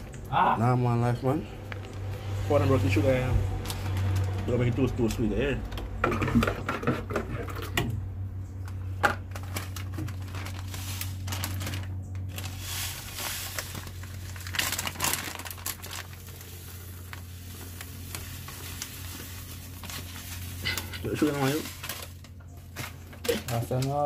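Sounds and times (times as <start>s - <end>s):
steady low hum: 0.0s - 23.3s
plastic bag crinkling: 3.5s - 5.0s, 8.7s - 24.0s.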